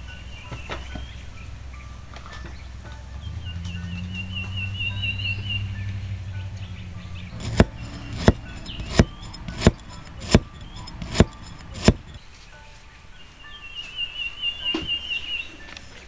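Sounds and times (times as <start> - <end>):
faint bird chirping: 0.0 - 16.0
cleaver chopping on wooden board: 7.3 - 12.2.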